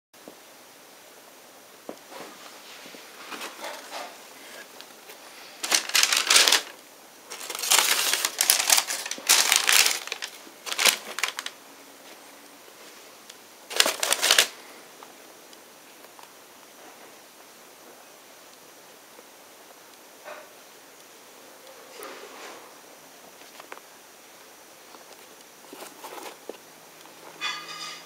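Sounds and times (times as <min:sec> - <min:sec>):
tissue paper rustling: 0:02.1 - 0:12.2, 0:13.7 - 0:14.6, 0:25.6 - 0:26.6.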